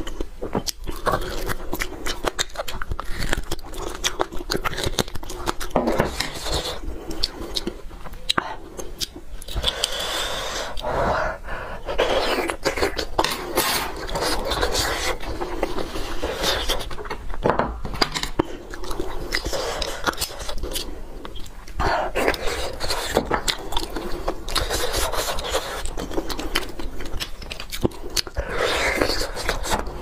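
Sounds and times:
utensil clicking and scraping bone: 0:00.0 - 0:10.9
wet sucking and chewing: 0:00.0 - 0:17.4, 0:18.0 - 0:30.0.

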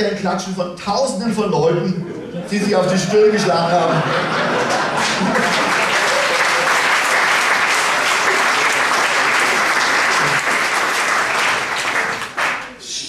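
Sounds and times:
audience applauding: 0:04.0 - 0:12.8.

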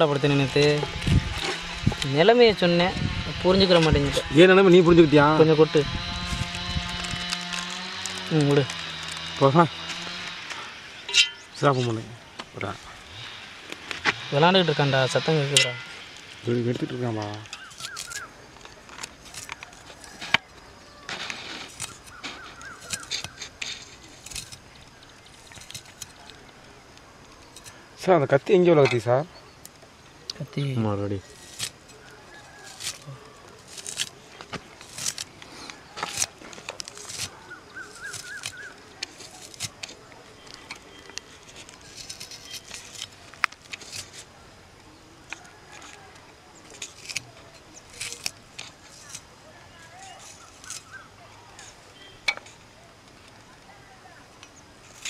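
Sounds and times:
onion skins crackling: 0:00.0 - 0:55.0
bird chirping: 0:14.1 - 0:21.0, 0:21.8 - 0:26.5, 0:35.4 - 0:43.3, 0:44.0 - 0:54.8.

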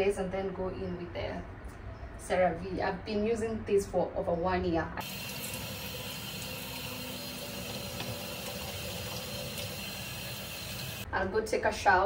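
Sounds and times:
sink tap running: 0:05.0 - 0:11.1.

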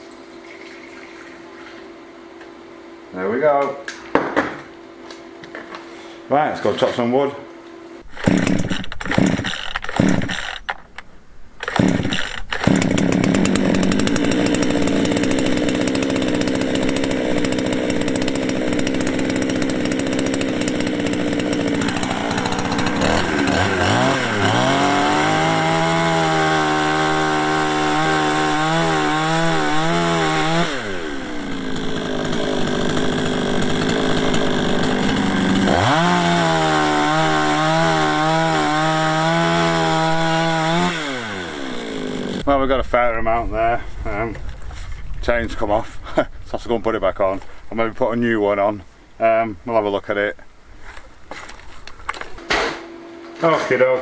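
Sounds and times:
chainsaw cutting logs: 0:08.0 - 0:10.8, 0:11.6 - 0:42.6.

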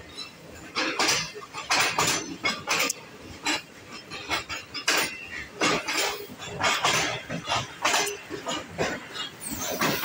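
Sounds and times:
metallic clanks from wheels: 0:00.0 - 0:10.0
train coaches rolling past: 0:00.0 - 0:10.0.

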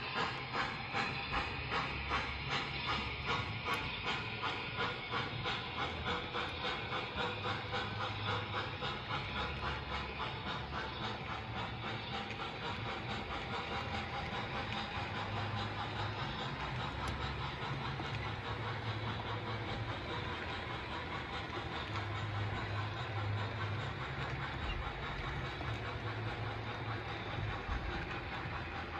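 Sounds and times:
model train wheels rumbling: 0:00.0 - 0:28.9
rhythmic ticking of wheels: 0:00.0 - 0:28.9.

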